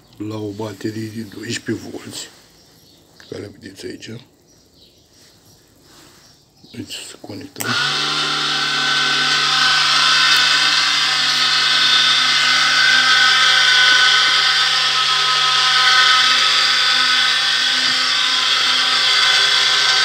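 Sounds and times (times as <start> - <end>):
electric motor whining: 7.6 - 20.0.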